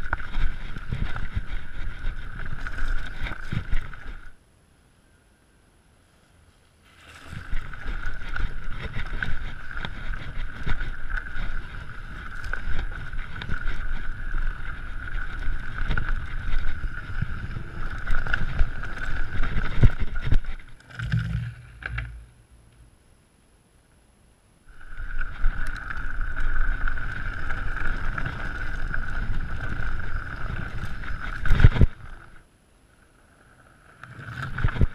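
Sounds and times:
mountain bike rattling over rough trail: 0:00.0 - 0:04.4, 0:06.8 - 0:22.3, 0:24.7 - 0:32.5, 0:33.2 - 0:34.9
bike knocking over stones: 0:07.0 - 0:22.3, 0:24.8 - 0:32.4.

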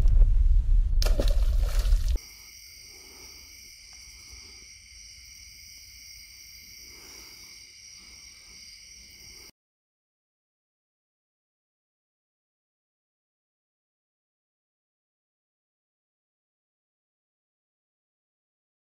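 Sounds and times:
fish splashing into water: 0:01.0 - 0:02.2
night insects chorus: 0:01.6 - 0:09.5.

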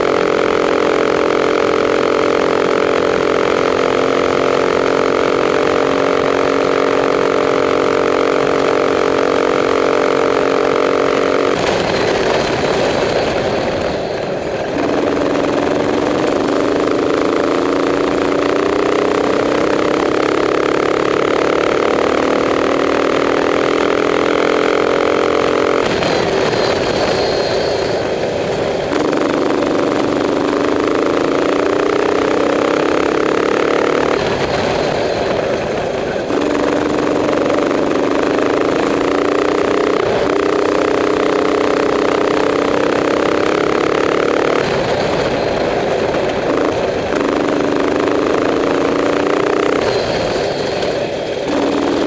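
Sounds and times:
racing kart engine running hard: 0:00.0 - 0:52.0.

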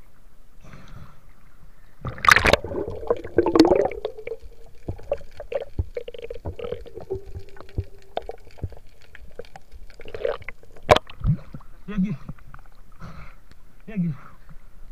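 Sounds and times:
faint steady hum: 0:00.0 - 0:14.9
muffled underwater sea: 0:00.0 - 0:14.9
sharp underwater clicks: 0:02.0 - 0:11.6
water splashing: 0:02.0 - 0:11.8.

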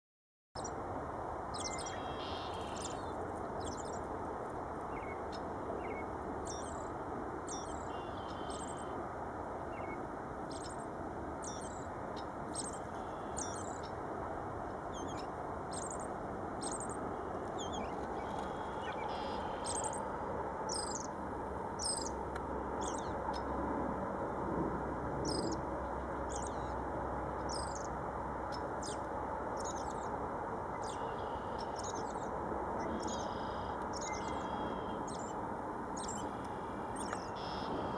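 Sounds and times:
low background noise: 0:00.6 - 0:37.9
robin singing: 0:01.5 - 0:04.0, 0:04.9 - 0:06.9, 0:07.5 - 0:09.0, 0:09.8 - 0:14.0, 0:14.9 - 0:21.2, 0:21.8 - 0:22.2, 0:22.8 - 0:23.5, 0:25.2 - 0:26.8, 0:27.4 - 0:30.1, 0:30.7 - 0:35.4, 0:36.0 - 0:37.9.

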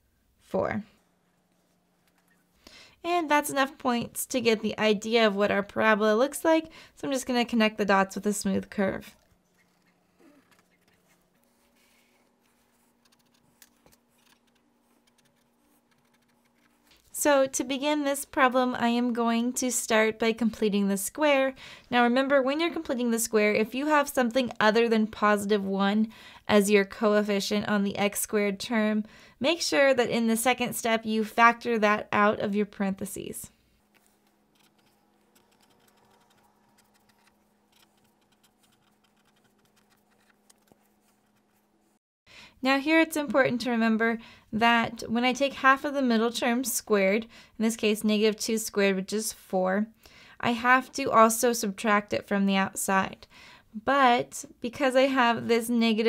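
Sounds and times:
pen scratching on paper: 0:09.5 - 0:16.9, 0:34.0 - 0:41.7.

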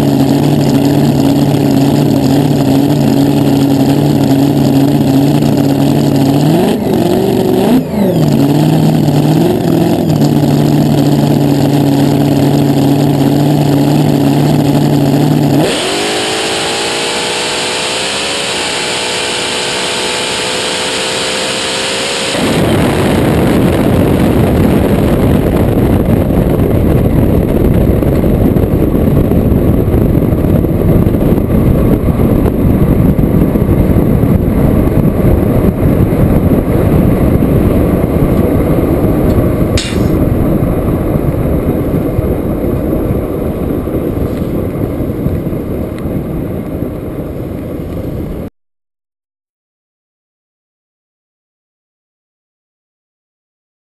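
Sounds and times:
dragster engine revving: 0:00.0 - 0:31.6
wind and tyre noise: 0:00.0 - 0:48.5.

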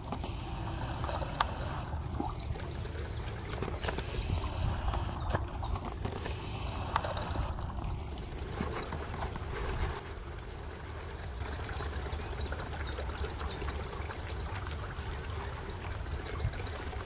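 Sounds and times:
wind noise on microphone: 0:00.0 - 0:10.5, 0:16.1 - 0:17.0.

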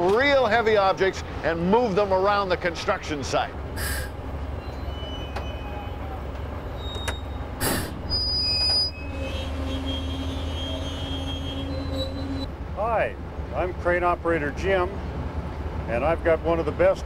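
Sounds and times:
crane engine running: 0:03.4 - 0:13.8
high metallic squeals: 0:04.6 - 0:12.5
short sharp burst of noise: 0:07.6 - 0:08.1.

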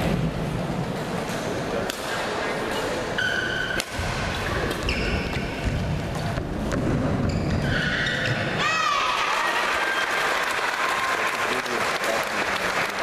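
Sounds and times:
crowd chattering: 0:00.0 - 0:07.6
sneakers squeaking on court: 0:04.5 - 0:08.5
crowd applauding: 0:09.2 - 0:13.0.

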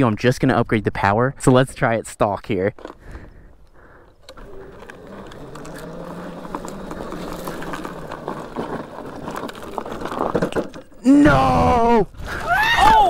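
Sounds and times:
tyre noise: 0:02.8 - 0:13.0
electric motor hum: 0:03.9 - 0:10.4
clicks and rattles: 0:04.0 - 0:11.1.

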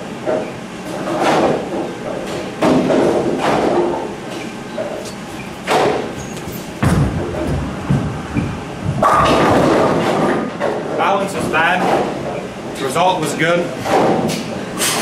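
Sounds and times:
knocks and clatters echoing: 0:01.1 - 0:12.4
bowling ball thud: 0:05.6 - 0:10.8
bowling ball rolling rumble: 0:05.6 - 0:12.5.

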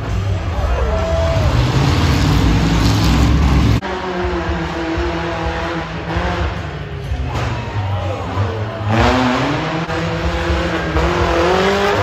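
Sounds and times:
truck engine rumbling: 0:00.0 - 0:07.3
truck engine with whine: 0:00.0 - 0:12.0.

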